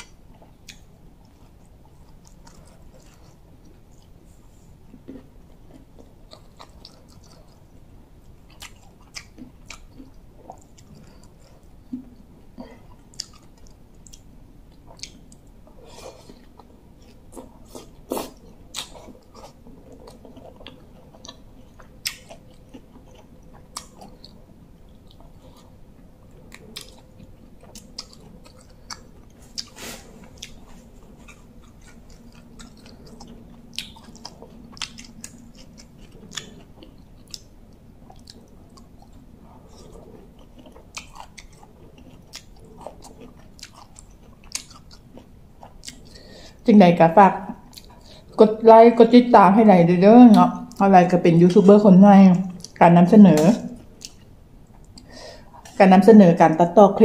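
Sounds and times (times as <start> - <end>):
wet chewing and smacking: 0.0 - 46.7, 47.6 - 48.4, 52.4 - 55.8
mouth clicks and crunches: 12.6 - 46.4.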